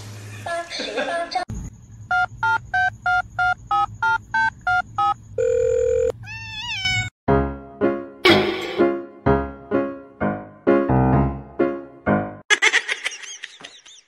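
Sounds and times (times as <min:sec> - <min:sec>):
electronic phone ringing beeps: 0:02.1 - 0:06.2
cat meow: 0:06.2 - 0:07.1
piano notes: 0:07.3 - 0:12.4.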